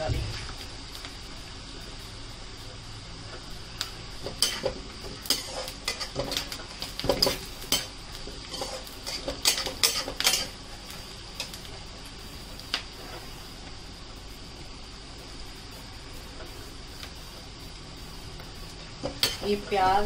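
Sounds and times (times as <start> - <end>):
onions sizzling in oil: 0.0 - 20.0
metal spoon scraping a metal pan: 4.4 - 6.5, 7.2 - 10.5, 19.1 - 19.6.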